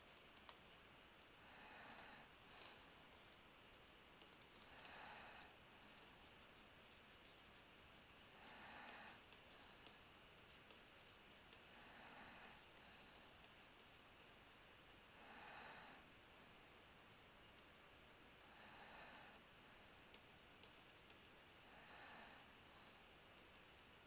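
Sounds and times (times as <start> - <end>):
faint breathing into microphone: 1.4 - 3.3, 4.5 - 6.3, 11.6 - 13.5, 15.1 - 16.7, 21.6 - 23.2.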